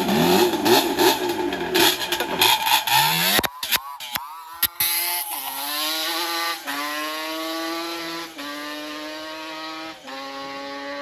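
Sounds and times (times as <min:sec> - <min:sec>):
atv engine accelerating through gears: 0:00.0 - 0:11.0.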